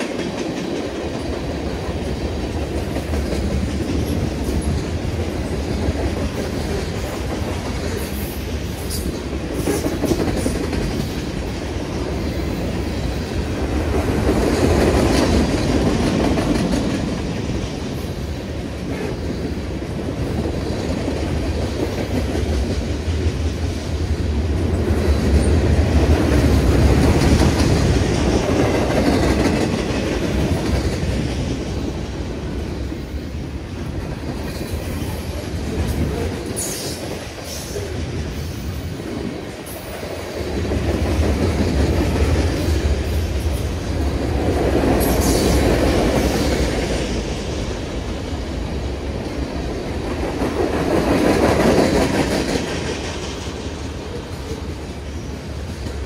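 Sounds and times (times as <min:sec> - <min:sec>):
train wheels clacking on rails: 0:00.0 - 0:56.0.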